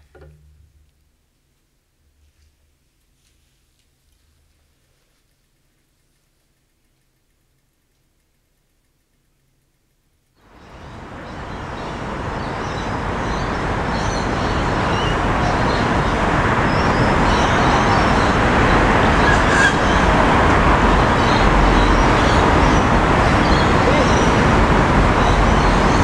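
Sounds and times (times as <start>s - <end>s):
road traffic hum: 10.4s - 26.0s.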